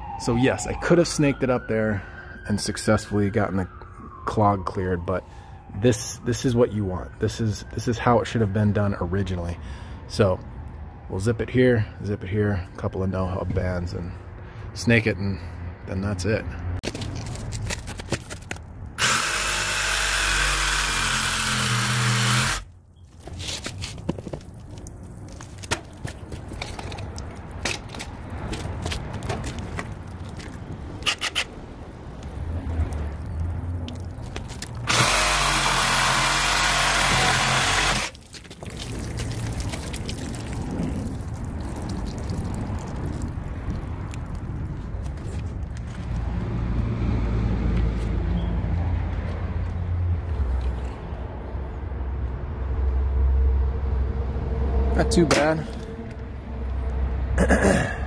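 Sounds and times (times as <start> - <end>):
reciprocating saw cutting pipe: 19.0 - 22.7, 34.8 - 38.2.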